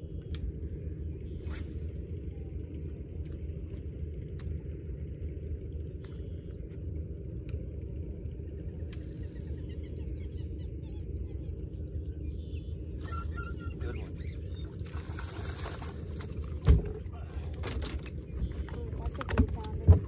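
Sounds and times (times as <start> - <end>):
faint bird chirps: 9.0 - 15.6.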